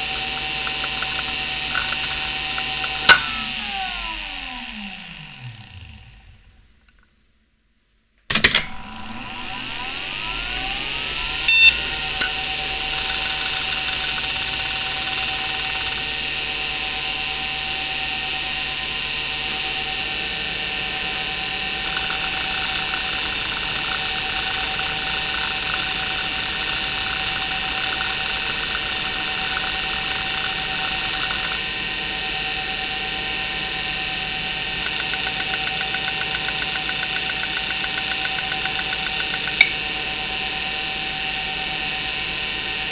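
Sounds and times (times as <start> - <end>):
hard drive heads clicking: 0.0 - 3.7, 12.2 - 16.0, 21.8 - 31.6, 34.8 - 39.8
hard drive spinning up whine: 0.0 - 7.0, 8.7 - 42.9.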